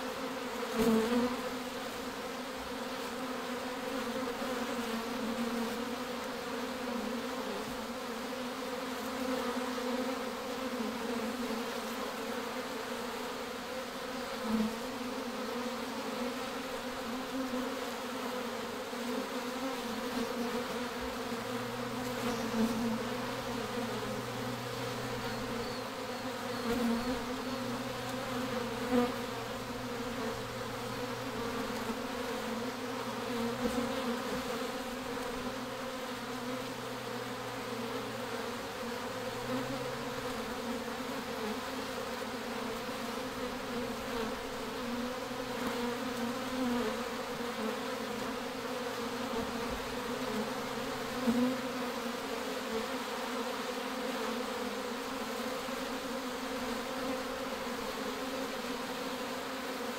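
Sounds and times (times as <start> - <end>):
bee swarm buzzing: 0.0 - 59.9.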